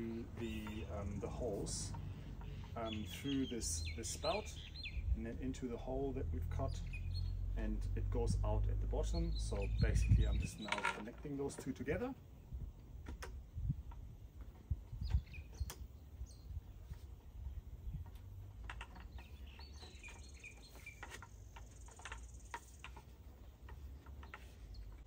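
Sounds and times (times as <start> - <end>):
birds chirping: 0.0 - 12.6, 13.8 - 25.0
bamboo knocks and clatters: 9.5 - 12.0, 18.0 - 25.0.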